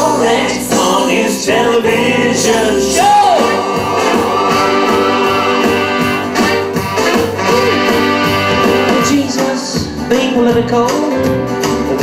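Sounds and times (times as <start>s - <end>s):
country blues band music: 0.0s - 12.0s.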